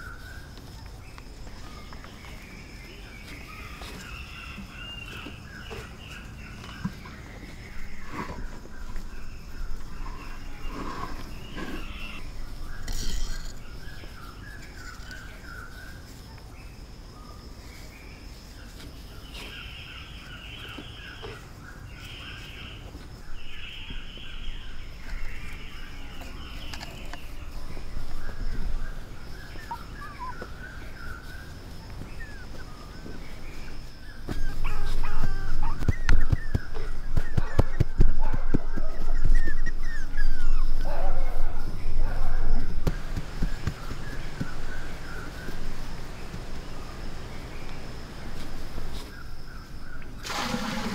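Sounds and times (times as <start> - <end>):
high insect drone: 0.0 - 16.0
birds calling: 0.0 - 50.9
puppies whimpering: 29.6 - 30.5, 34.4 - 41.6.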